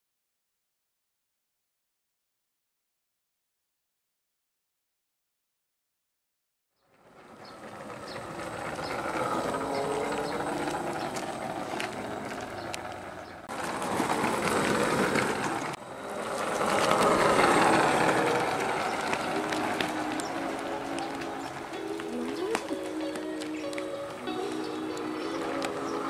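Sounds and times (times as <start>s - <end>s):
electric motor and gears whirring: 7.3s - 26.0s.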